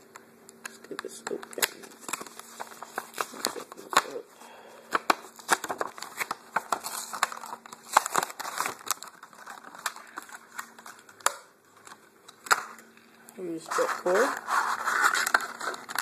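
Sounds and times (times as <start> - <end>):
plastic packaging crackling: 0.6 - 4.3, 4.9 - 12.9, 13.6 - 16.0.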